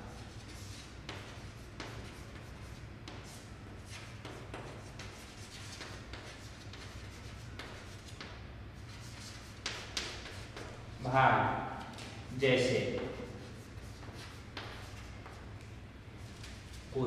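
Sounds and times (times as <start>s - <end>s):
steady low hum: 0.0s - 17.0s
chalk scratching on blackboard: 0.1s - 10.8s, 12.6s - 15.5s.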